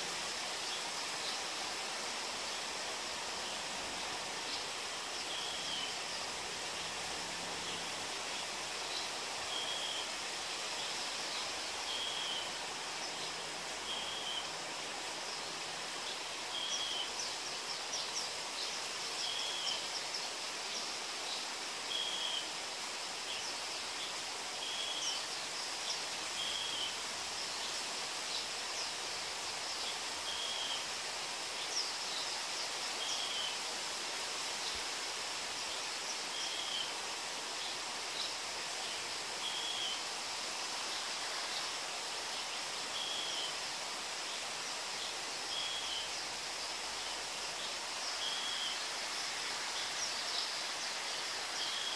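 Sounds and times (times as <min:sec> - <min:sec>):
steady rain hiss: 0:00.0 - 0:51.9.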